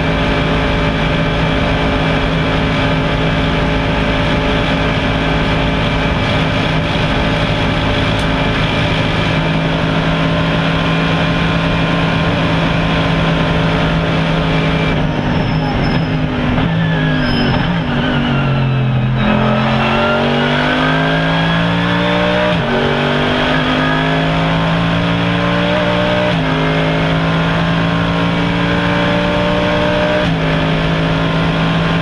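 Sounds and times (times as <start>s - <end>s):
race car engine at high revs: 0.0s - 32.0s.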